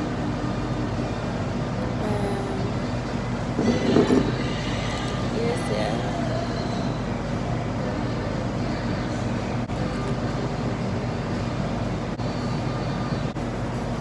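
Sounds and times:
ventilation rumble and hum: 0.0 - 14.0.

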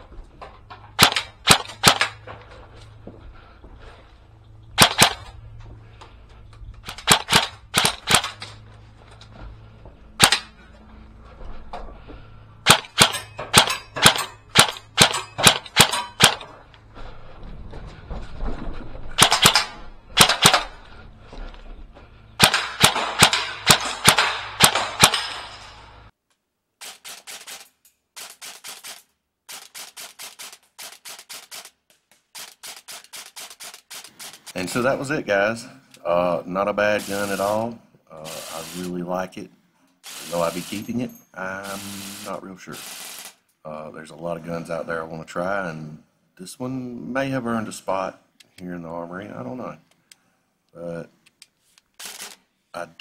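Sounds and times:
airsoft rifle shots: 1.0 - 2.2, 4.8 - 5.3, 6.8 - 8.4, 10.2 - 10.5, 12.6 - 16.4, 19.2 - 20.8, 22.4 - 25.8.

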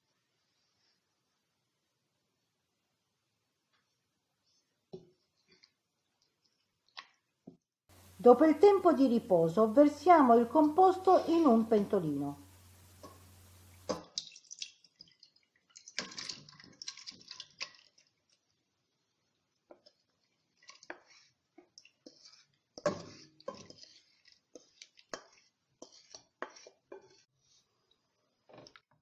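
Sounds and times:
spoon knocking and scraping bowl: 13.0 - 14.1, 22.0 - 27.3
wet plops and drips: 13.8 - 18.6.

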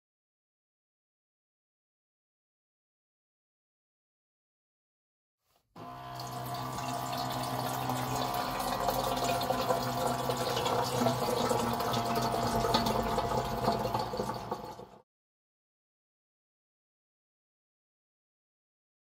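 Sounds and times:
pump motor hum: 5.8 - 15.0
water running into kettle: 5.8 - 15.0.

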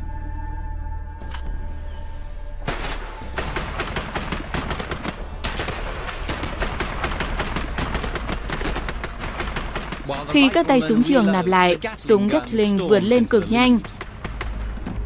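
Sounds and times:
rifles firing together: 2.7 - 10.2
rapid gatling gun fire: 2.7 - 10.4.

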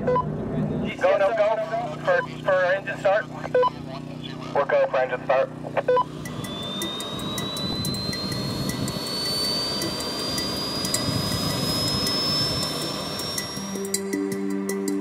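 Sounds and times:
small jet engine starting up: 5.5 - 15.0.

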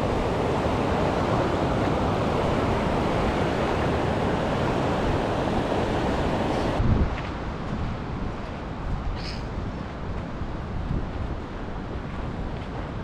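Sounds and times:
river rushing over rocks: 0.0 - 6.8.

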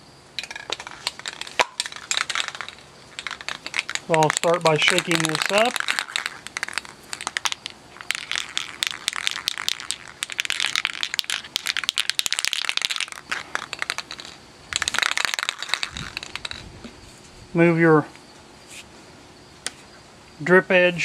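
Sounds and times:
spray can ball rattling: 0.4 - 16.7.

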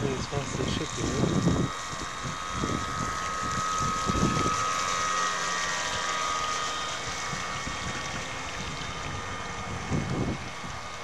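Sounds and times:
wind gust on microphone: 0.0 - 4.7, 7.2 - 10.9
electric motor whining: 0.0 - 11.0.

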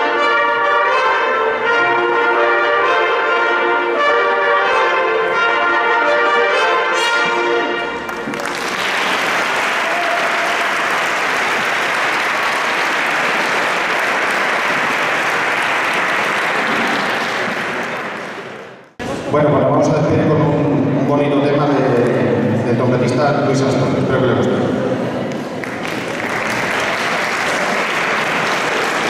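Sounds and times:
brass ensemble playing: 0.0 - 8.4
audience applause: 8.0 - 18.8, 25.3 - 29.0.

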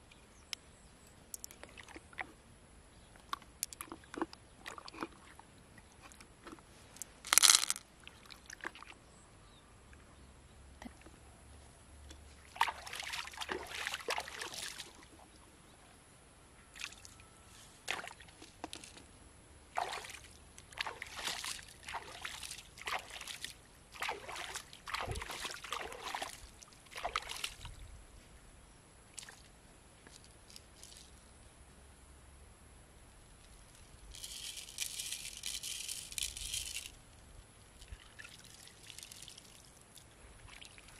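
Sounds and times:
pond water sloshing and splashing: 1.4 - 2.5, 3.2 - 9.2, 12.2 - 15.5, 16.7 - 27.8, 29.1 - 31.2, 37.7 - 40.9.

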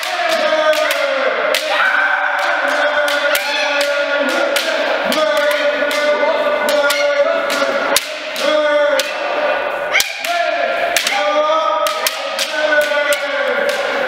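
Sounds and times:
people shouting drawn-out cries: 1.5 - 4.0.

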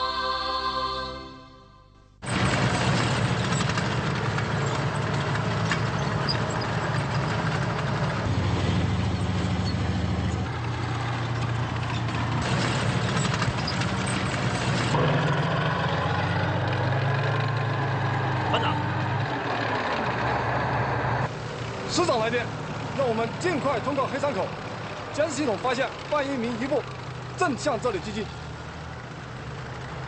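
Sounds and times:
tracks clattering: 2.2 - 20.4
tank engine running: 2.2 - 30.0.

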